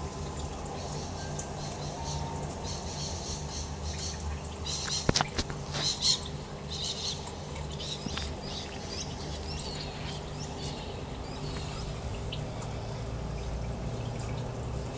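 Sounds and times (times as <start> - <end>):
steady low hum: 0.0 - 14.9
bird chirps and twitters: 0.8 - 12.5.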